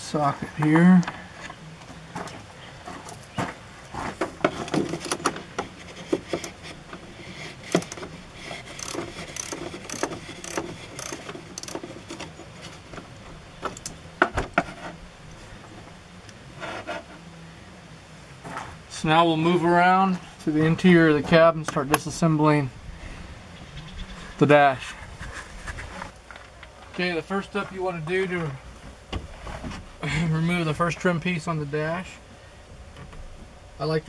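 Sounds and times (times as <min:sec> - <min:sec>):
socket wrench ratchet clicking: 0:08.7 - 0:11.8.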